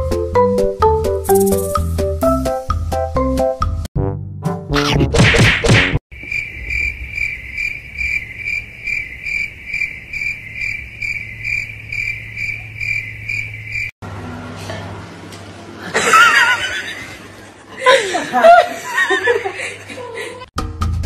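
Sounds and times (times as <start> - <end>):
crickets chirping: 6.1 - 14.0.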